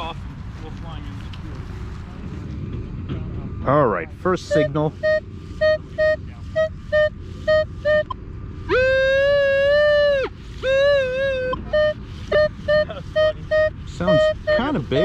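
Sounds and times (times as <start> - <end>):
metal detector held tone: 4.5 - 9.3, 10.6 - 15.0
metal detector beeping: 4.5 - 15.0.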